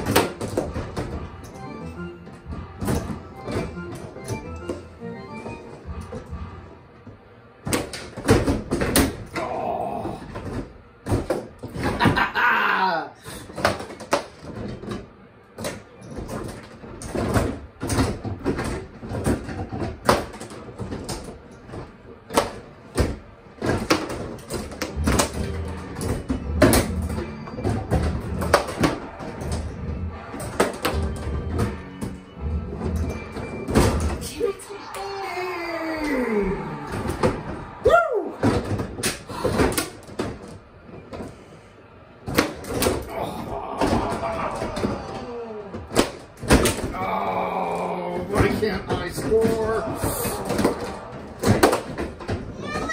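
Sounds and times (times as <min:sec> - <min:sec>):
bubble hockey clacks and knocks: 0:13.5 - 0:15.0, 0:15.6 - 0:32.2, 0:48.2 - 0:52.9.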